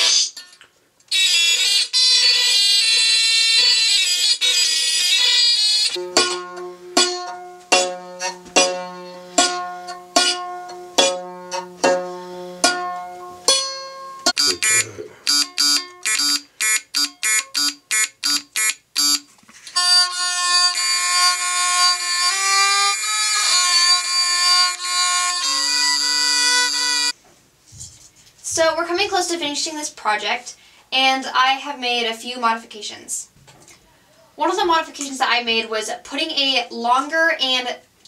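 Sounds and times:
buzzy electronic notes: 0:14.2 - 0:19.2
violin bowed sliding tones: 0:19.8 - 0:27.1.

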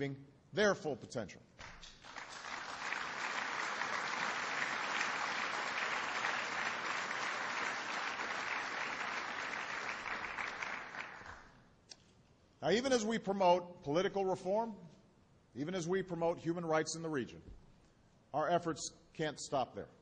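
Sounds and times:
audience applauding: 0:01.6 - 0:11.6.

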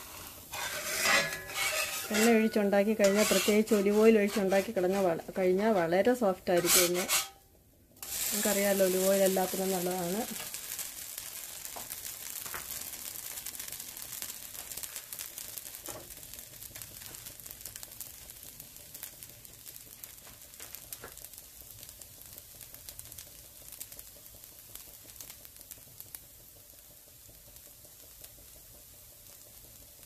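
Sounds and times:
dosa sizzling in oil: 0:00.0 - 0:30.0.

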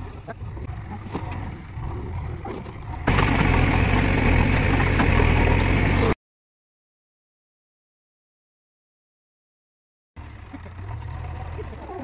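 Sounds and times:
diesel engine running: 0:00.0 - 0:06.2, 0:10.2 - 0:12.0.

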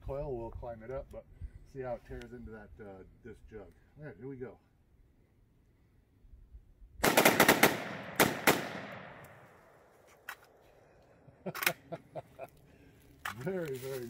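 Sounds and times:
rapid gunshots: 0:07.0 - 0:09.2.

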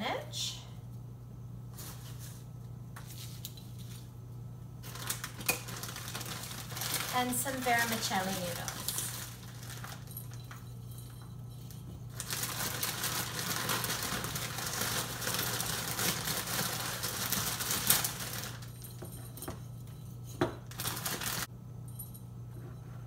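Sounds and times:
dry noodles crackling: 0:04.8 - 0:10.5, 0:12.1 - 0:18.8, 0:20.7 - 0:21.5
plastic bag crinkling: 0:04.8 - 0:10.6, 0:12.1 - 0:19.0, 0:20.6 - 0:21.5.

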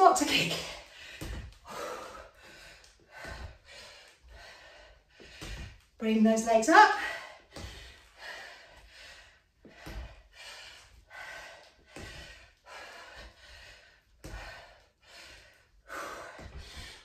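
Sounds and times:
woman breathing heavily: 0:00.0 - 0:06.0, 0:06.6 - 0:17.0
feet thumping on wooden floor: 0:01.0 - 0:04.5, 0:05.1 - 0:08.4, 0:09.6 - 0:10.3, 0:11.8 - 0:14.7.

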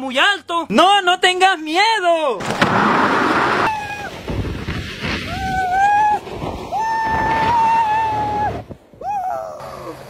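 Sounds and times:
rush of wind and sliding: 0:02.4 - 0:10.0.

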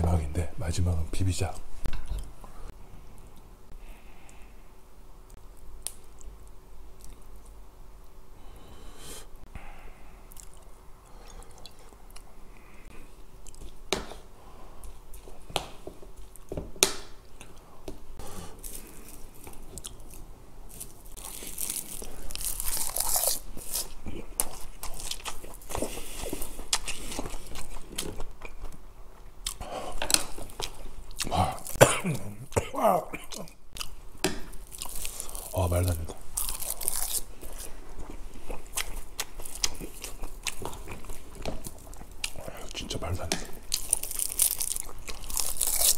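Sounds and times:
crunchy chewing: 0:10.3 - 0:13.8, 0:18.2 - 0:28.8, 0:33.2 - 0:42.9, 0:43.5 - 0:45.9.

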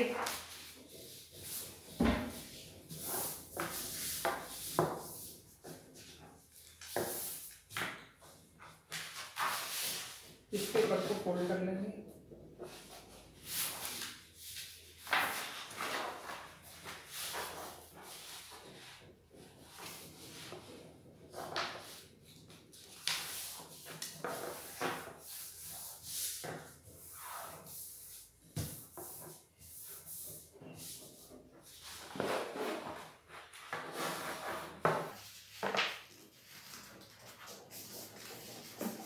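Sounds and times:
paper rustling and swishing: 0:13.5 - 0:19.0.

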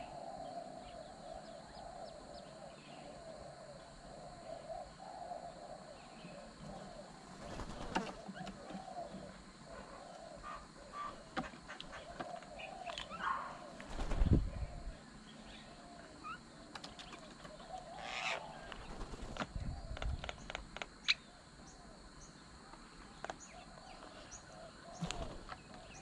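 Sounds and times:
birds calling: 0:00.0 - 0:26.0
birds pecking and landing clicks: 0:06.6 - 0:09.4, 0:10.9 - 0:14.4, 0:16.6 - 0:21.2, 0:22.7 - 0:23.6, 0:24.9 - 0:26.0
wing flapping: 0:07.2 - 0:08.9, 0:13.7 - 0:14.8, 0:18.2 - 0:20.8, 0:24.9 - 0:25.6.

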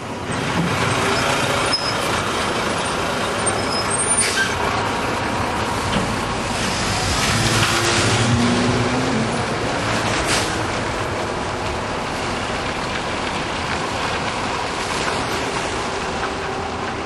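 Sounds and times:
dump truck diesel engine: 0:00.0 - 0:17.0
brief high squeaks: 0:03.5 - 0:04.6.

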